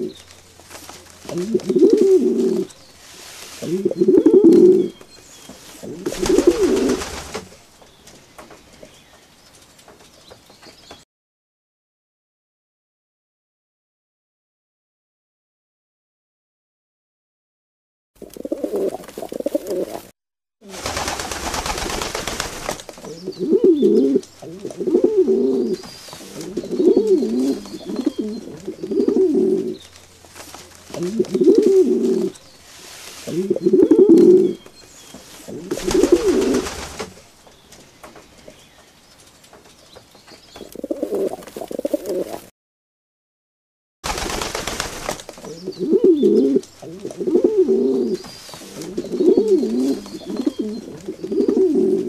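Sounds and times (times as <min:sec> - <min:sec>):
pigeons cooing: 0:00.0 - 0:07.6, 0:18.2 - 0:20.1, 0:23.0 - 0:30.2, 0:30.9 - 0:37.2, 0:40.6 - 0:42.5, 0:45.4 - 0:52.0.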